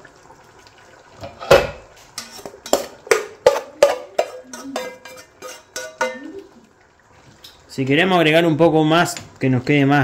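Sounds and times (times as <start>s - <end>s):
pan knocking on metal pot: 1.2s - 6.4s.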